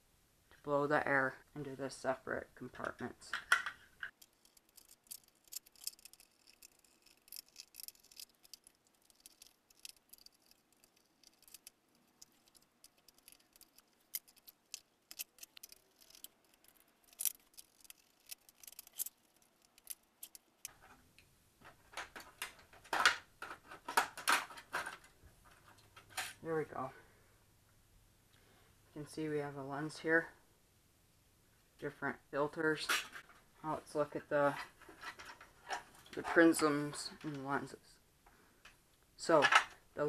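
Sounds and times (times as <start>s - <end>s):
plastic and metal parts handled: 2.8s - 26.4s, 34.5s - 36.6s
screwdriver clicking on screws: 4.1s - 20.7s.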